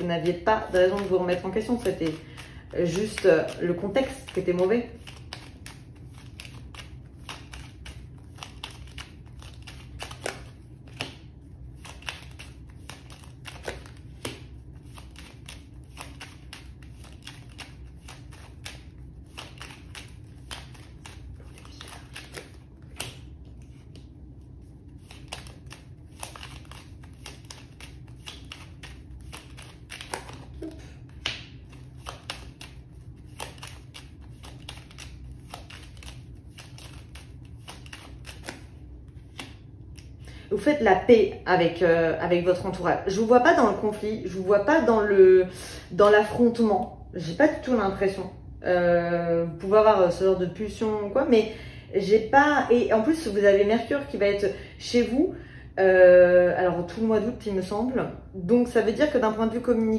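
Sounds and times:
cards being shuffled: 0.0s - 40.3s
low hum: 0.0s - 51.3s.

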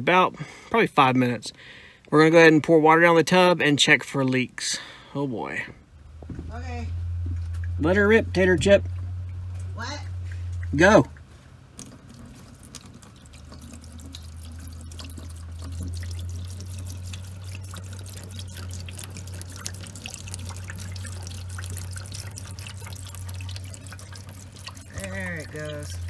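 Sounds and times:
low hum: 5.8s - 26.0s
water splashing and trickling in pipes: 7.2s - 26.0s.

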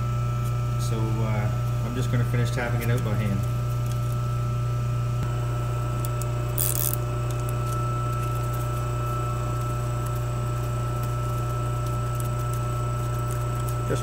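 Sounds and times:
steady low machine hum: 0.0s - 14.0s.

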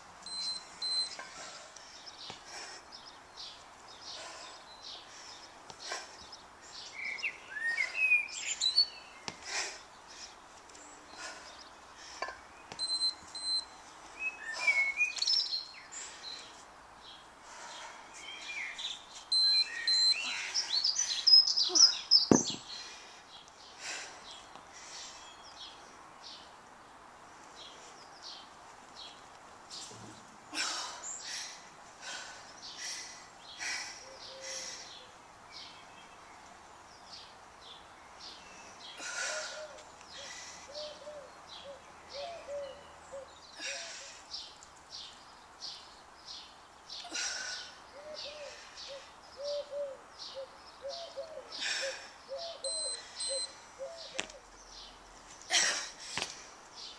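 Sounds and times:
birds singing and chirping: 0.3s - 26.6s, 31.0s - 55.5s
pigeon cooing: 40.7s - 43.3s, 48.0s - 54.4s.

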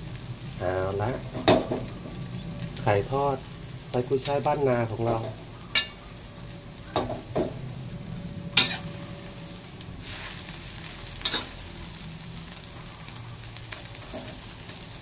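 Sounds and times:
omelette sizzling in a wok: 0.0s - 15.0s
metal spatula scraping a wok: 8.4s - 12.0s.

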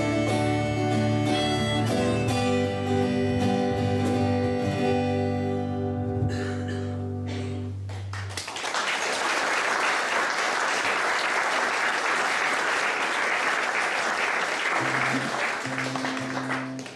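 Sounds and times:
acoustic guitar and bass: 0.0s - 8.3s
audience applauding: 7.9s - 16.9s.

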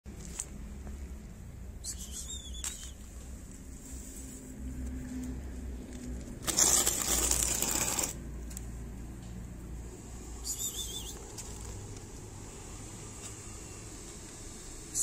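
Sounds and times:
rustling crackling noise: 0.1s - 1.1s, 2.0s - 9.4s, 11.0s - 12.4s.

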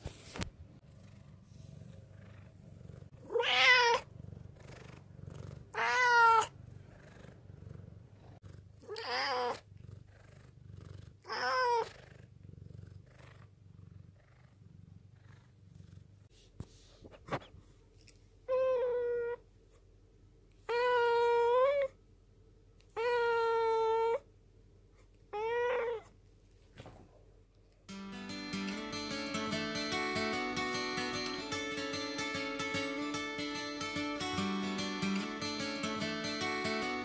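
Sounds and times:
cat purring: 0.6s - 16.4s
cat meowing: 3.2s - 4.1s, 5.7s - 6.5s, 8.9s - 9.6s, 11.3s - 11.9s, 25.3s - 26.1s.

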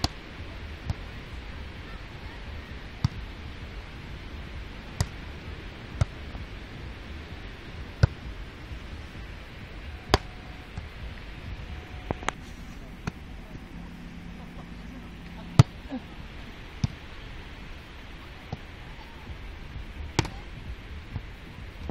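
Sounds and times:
background hiss: 0.0s - 21.9s
volleyball slaps: 3.0s - 3.2s, 4.9s - 5.2s, 6.0s - 6.2s, 8.0s - 8.2s, 10.1s - 10.9s, 13.0s - 13.2s, 15.6s - 15.8s, 16.8s - 17.0s, 20.2s - 20.4s.

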